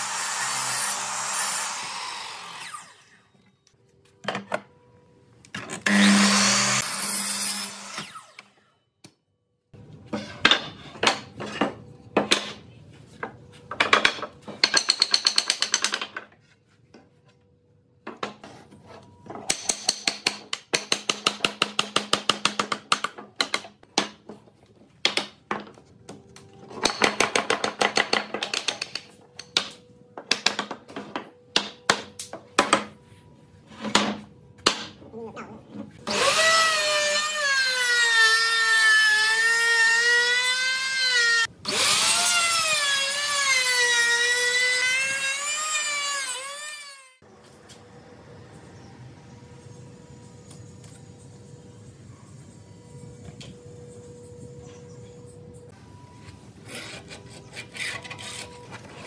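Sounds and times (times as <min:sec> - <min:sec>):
miter saw cutting wood: 0:00.0 - 0:03.3, 0:05.8 - 0:08.6, 0:36.0 - 0:47.2.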